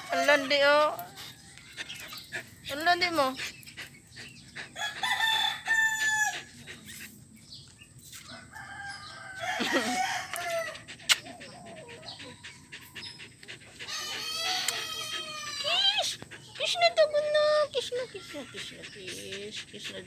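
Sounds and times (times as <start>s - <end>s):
rooster crowing: 4.8s - 6.4s, 8.3s - 10.8s, 13.9s - 15.7s.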